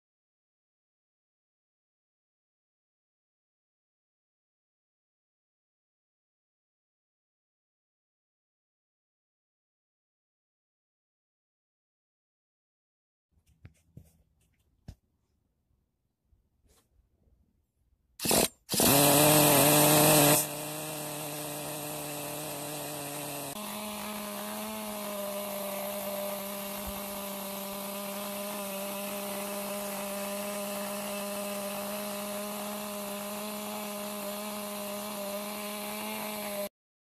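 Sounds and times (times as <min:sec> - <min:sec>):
nitro engine running: 0:18.2 - 0:36.7.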